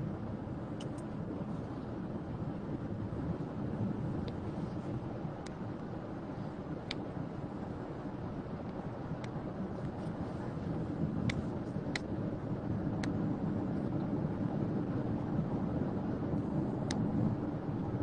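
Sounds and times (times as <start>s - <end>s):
car road and engine noise: 0.0s - 18.0s
faint clicks: 0.8s - 1.1s, 16.8s - 17.1s.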